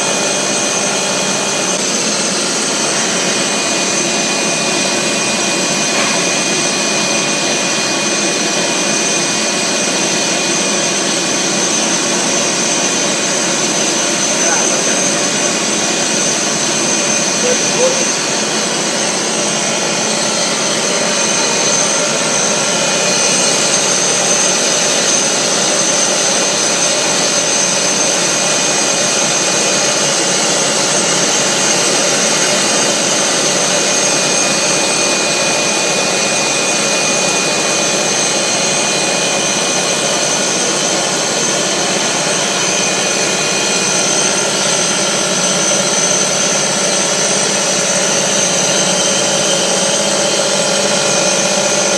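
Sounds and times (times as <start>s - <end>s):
high whine: 0.0s - 27.4s.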